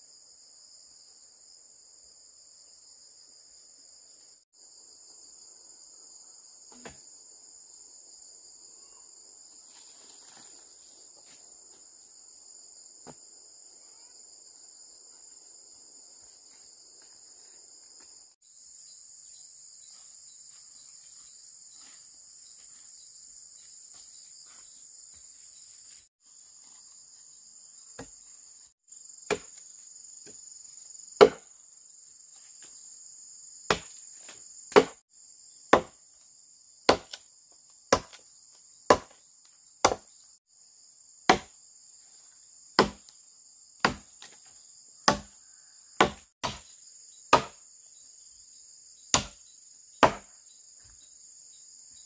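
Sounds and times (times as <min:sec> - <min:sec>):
crickets chirring: 0:00.0 - 0:52.0
tool striking wood: 0:31.2 - 0:31.4, 0:34.7 - 0:35.0, 0:35.7 - 0:36.0, 0:36.9 - 0:37.2, 0:37.9 - 0:38.2, 0:38.9 - 0:39.2, 0:39.8 - 0:40.0, 0:41.3 - 0:41.5, 0:42.8 - 0:43.0, 0:43.8 - 0:44.1, 0:45.1 - 0:45.4, 0:46.0 - 0:46.6, 0:47.3 - 0:47.6, 0:49.2 - 0:49.4, 0:50.0 - 0:50.3.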